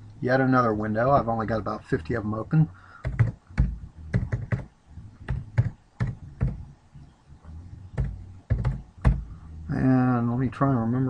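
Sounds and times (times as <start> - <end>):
typing on keyboard: 3.0 - 4.7, 5.3 - 6.6, 8.0 - 9.2.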